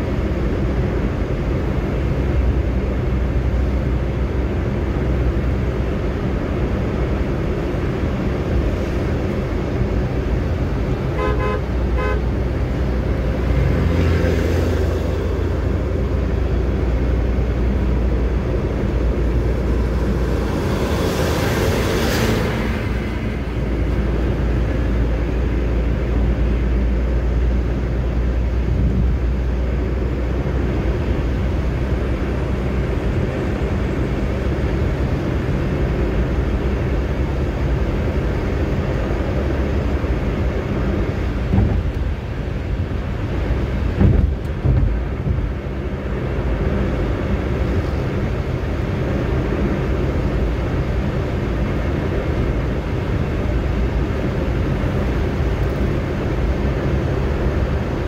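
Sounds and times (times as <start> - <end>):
car road and engine rumble: 0.0 - 58.0
rushing noise: 7.8 - 31.5
car horn toots: 11.1 - 12.3.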